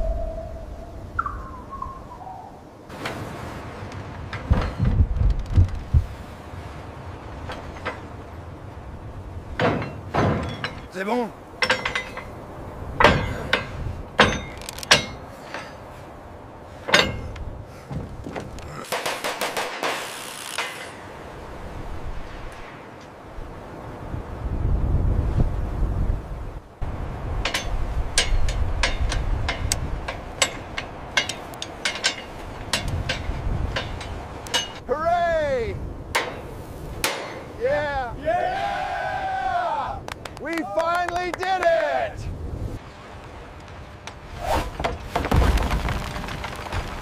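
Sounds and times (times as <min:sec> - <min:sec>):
low wind rumble: 0:00.0 - 0:19.7, 0:20.6 - 0:47.0
hammer striking metal girder: 0:11.6 - 0:12.4, 0:13.0 - 0:15.7, 0:16.9 - 0:17.4, 0:27.4 - 0:34.8, 0:36.1 - 0:37.6
hand tools knocking on iron: 0:13.0 - 0:15.3, 0:27.4 - 0:34.8.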